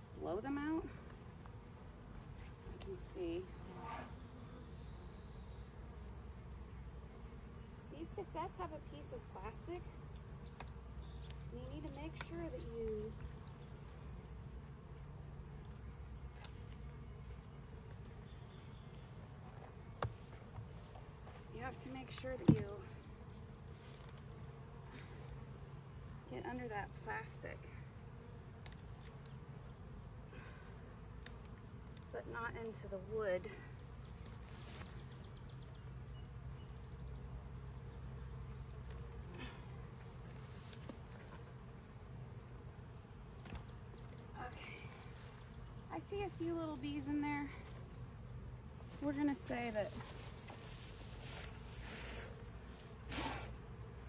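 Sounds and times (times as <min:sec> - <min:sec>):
bees buzzing: 0:00.0 - 0:54.0
high insect trill: 0:00.0 - 0:54.0
hive tool tick: 0:31.2 - 0:32.8.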